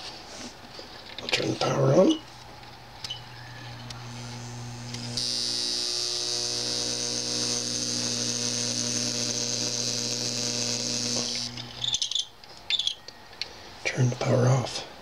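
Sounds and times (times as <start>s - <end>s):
electromagnet coil humming: 1.5s - 12.2s
high-pitched buzz: 3.2s - 12.0s.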